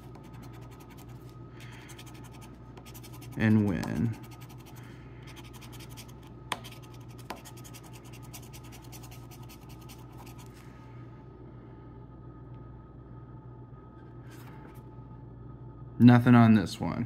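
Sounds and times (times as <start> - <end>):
coin scratching a lottery ticket: 0.0 - 1.2, 1.9 - 10.4.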